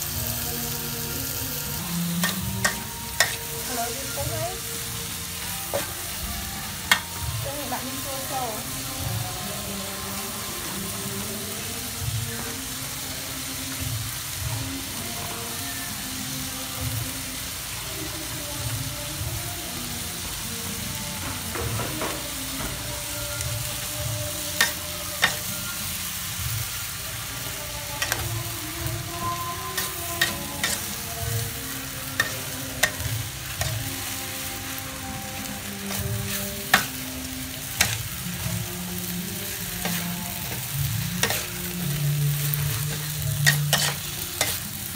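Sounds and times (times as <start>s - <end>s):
food sizzling in a wok: 0.0s - 44.9s
metal spatula scraping a wok: 29.0s - 33.8s, 39.0s - 44.9s.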